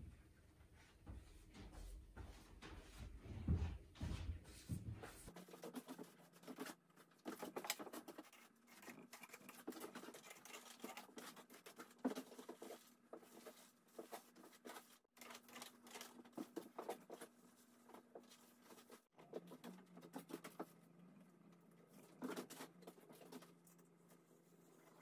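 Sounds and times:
paper rustling and scratching: 5.3 - 20.8, 21.9 - 24.3.

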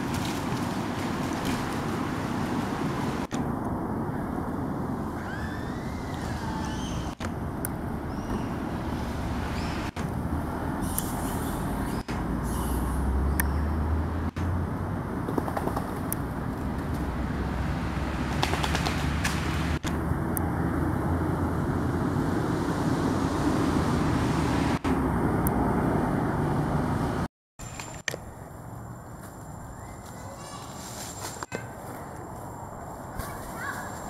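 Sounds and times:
road traffic: 0.0 - 34.0
faint animal calls: 5.2 - 7.2.

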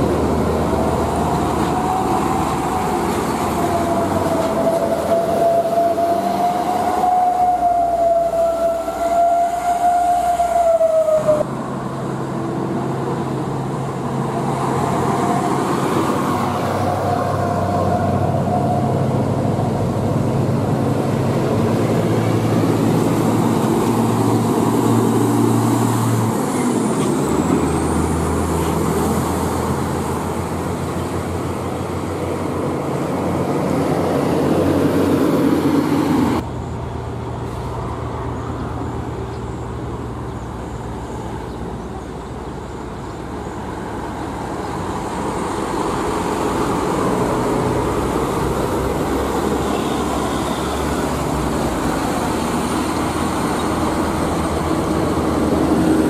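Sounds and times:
approaching truck engine: 0.0 - 56.0
road traffic: 0.0 - 56.0
diesel truck pulling away: 11.5 - 56.0.

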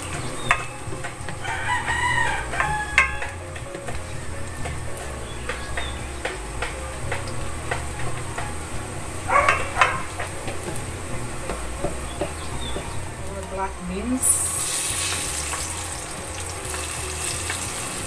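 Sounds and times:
garlic sizzling in oil: 0.0 - 18.0
animal call: 9.3 - 10.4.

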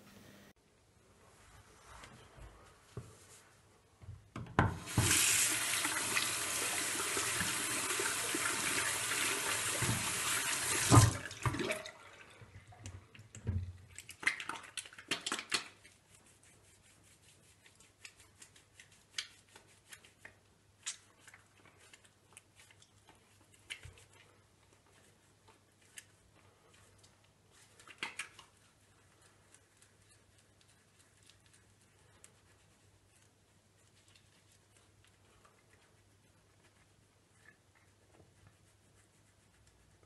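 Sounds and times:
tap water running into washbasin: 4.6 - 13.8
soapy hands lathering: 4.8 - 40.0.

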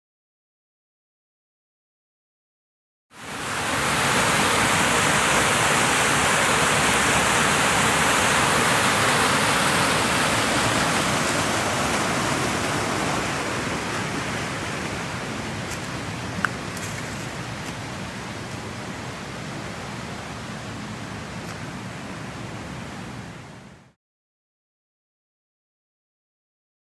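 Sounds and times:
water rushing over waterfall: 3.2 - 24.0.

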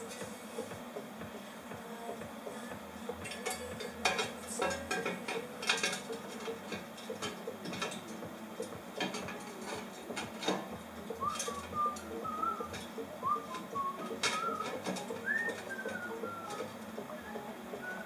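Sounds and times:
metal pipes clinking together: 3.3 - 8.1, 14.0 - 16.7.

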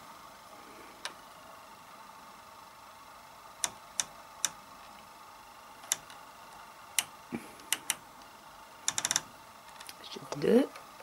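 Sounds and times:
dial clicking through detents: 7.0 - 8.0, 8.8 - 10.0.

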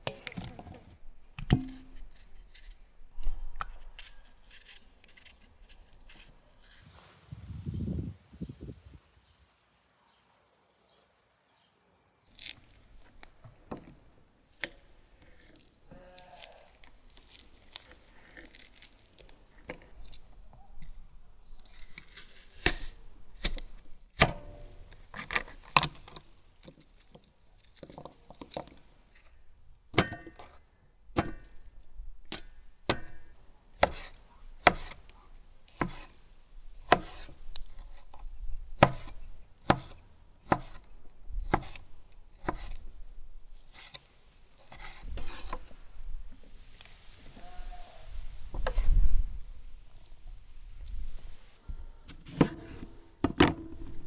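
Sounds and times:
knife chopping on cutting board: 33.8 - 35.0, 38.8 - 40.8, 41.4 - 41.8, 42.4 - 42.8.

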